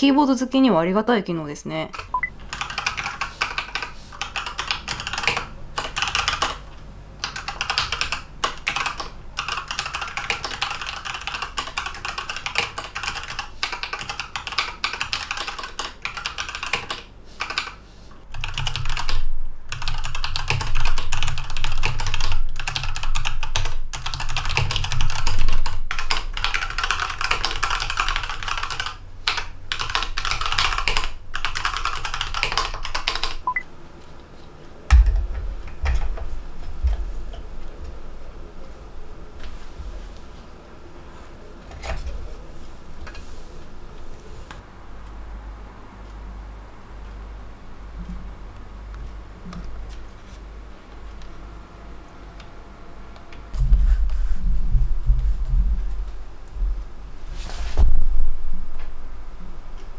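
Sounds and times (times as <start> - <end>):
fast keyboard typing: 1.9 - 33.6.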